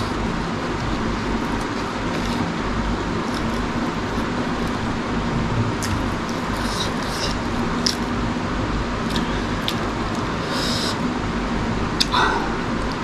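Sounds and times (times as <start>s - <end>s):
person chewing food: 0.0s - 5.0s, 5.8s - 8.2s, 9.0s - 11.1s, 12.0s - 13.0s
steady loud hiss: 0.0s - 13.0s
wet mouth clicks: 5.8s - 8.1s, 9.1s - 11.0s.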